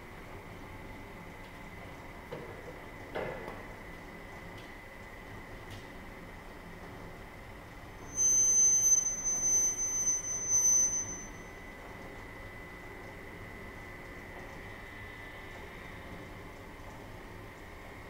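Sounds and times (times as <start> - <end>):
high-pitched squeal: 8.1 - 11.5.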